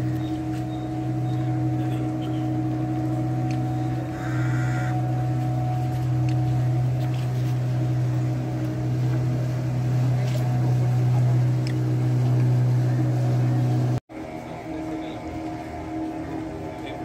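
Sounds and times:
motorboat engine drone: 0:00.0 - 0:17.0.

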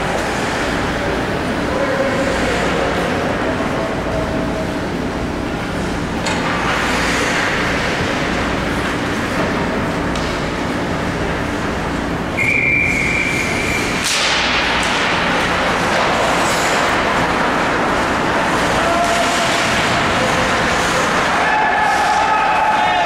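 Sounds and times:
crowd and arena din: 0:00.0 - 0:23.0
whistle blast: 0:12.4 - 0:13.9
people shouting: 0:18.5 - 0:23.0.

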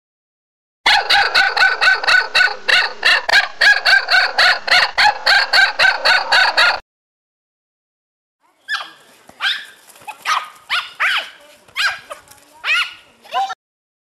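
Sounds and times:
small dog yapping: 0:08.7 - 0:13.5.

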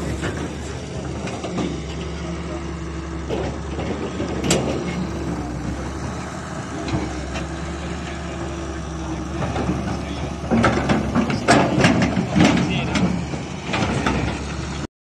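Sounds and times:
excavator diesel engine running: 0:00.0 - 0:14.9
sharp knocks and clatter: 0:03.2 - 0:06.2, 0:09.3 - 0:14.8.

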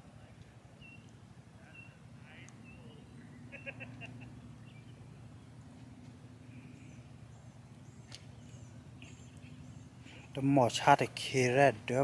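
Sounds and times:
steady low hum: 0:00.0 - 0:12.0
faint bird chirps: 0:00.7 - 0:05.6, 0:06.2 - 0:10.4.

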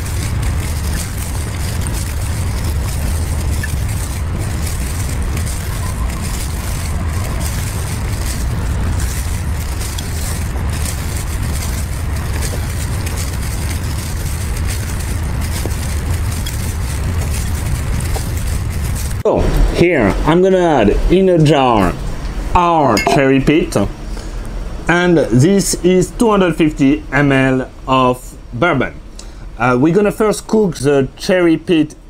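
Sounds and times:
low rumble: 0:00.0 - 0:24.0.

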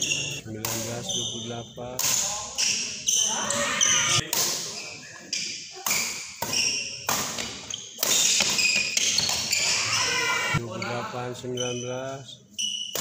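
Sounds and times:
shoes squeaking on wooden floor: 0:00.0 - 0:00.4, 0:07.6 - 0:10.0
rackets hitting shuttlecock: 0:02.0 - 0:02.8, 0:05.8 - 0:09.6.

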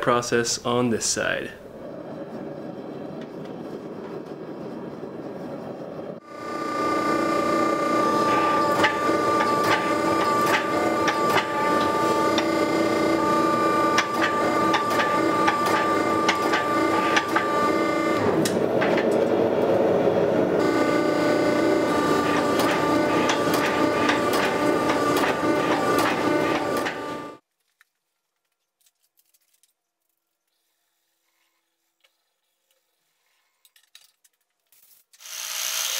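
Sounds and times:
hydraulic pump humming: 0:06.2 - 0:27.4.

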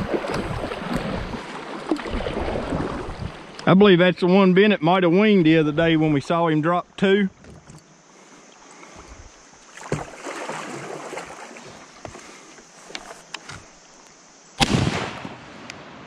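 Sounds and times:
shotgun shot: 0:14.6 - 0:15.4.

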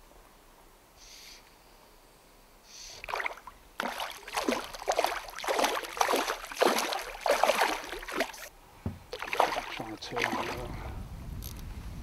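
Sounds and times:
fish splashing in water: 0:03.0 - 0:08.5, 0:09.1 - 0:10.7.

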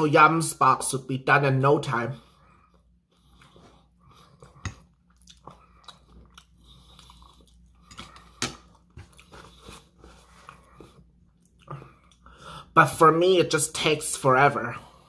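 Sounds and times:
person chewing food: 0:02.3 - 0:12.6.

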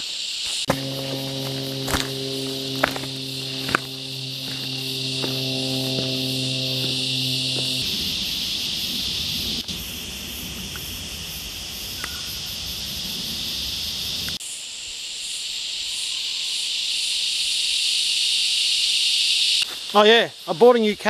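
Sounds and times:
insect chorus drone: 0:00.0 - 0:21.0
faint regular pulsing: 0:00.6 - 0:09.6
low rumble: 0:00.7 - 0:08.9.

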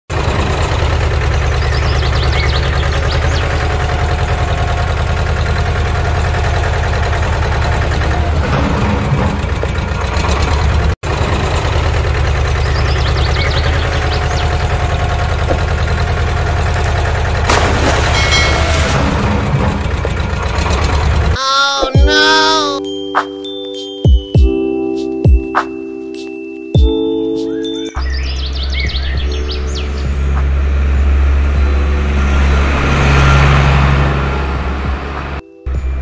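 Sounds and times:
engine idling: 0:00.1 - 0:21.4.

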